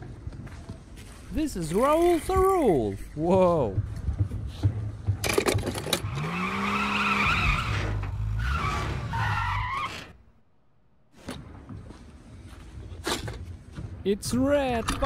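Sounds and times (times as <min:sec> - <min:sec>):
car tires squealing: 0:05.9 - 0:10.2.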